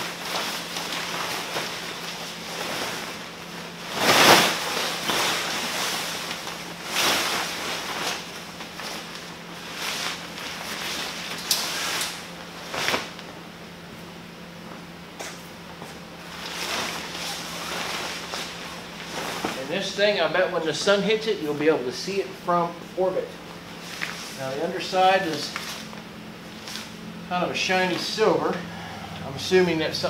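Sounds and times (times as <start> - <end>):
tent fabric rustling: 0.0 - 13.2, 16.2 - 20.2.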